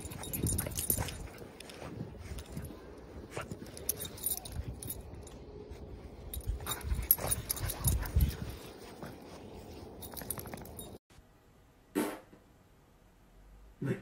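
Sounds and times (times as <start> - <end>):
metal dog tags jingling: 0.0 - 5.4, 6.2 - 8.7, 9.9 - 11.0.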